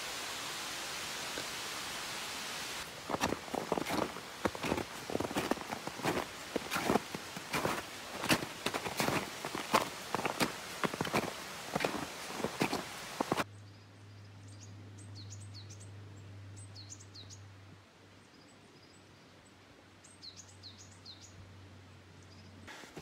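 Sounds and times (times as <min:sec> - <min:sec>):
footsteps on snow: 0:02.8 - 0:13.4
small birds chirping: 0:03.1 - 0:17.5.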